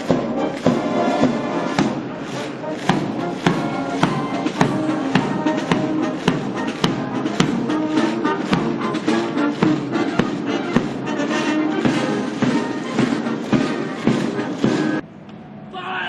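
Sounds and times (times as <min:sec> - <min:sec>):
military band playing a march: 0:00.0 - 0:15.0.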